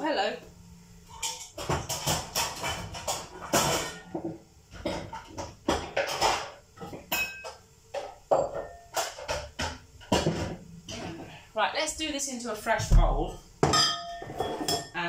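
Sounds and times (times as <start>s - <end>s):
crockery and pans clattering: 1.1s - 11.4s, 13.0s - 15.0s
dish ringing clink: 7.1s - 7.6s, 13.6s - 14.9s.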